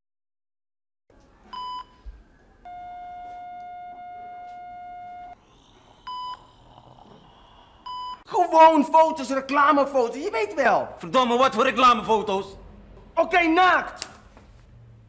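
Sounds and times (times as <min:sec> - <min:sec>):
long low electronic tone: 0:02.6 - 0:05.4.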